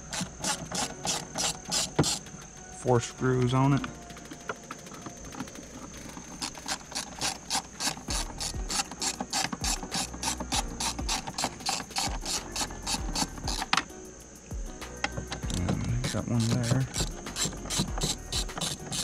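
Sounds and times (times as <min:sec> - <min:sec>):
ratchet clicking: 0:00.0 - 0:02.5, 0:03.2 - 0:19.0.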